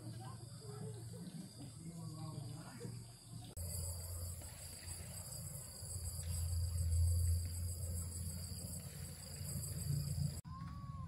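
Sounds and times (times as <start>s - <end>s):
insects chirring: 0.0s - 10.4s
low steady hum: 3.6s - 10.4s.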